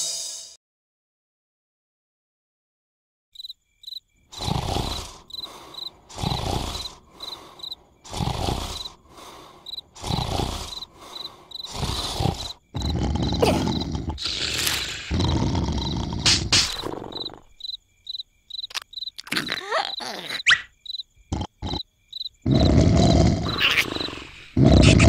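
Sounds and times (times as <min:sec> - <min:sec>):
crickets chirping: 0:03.4 - 0:25.0
cartoon snoring: 0:04.3 - 0:17.6, 0:19.2 - 0:20.7, 0:21.3 - 0:21.8, 0:22.4 - 0:25.0.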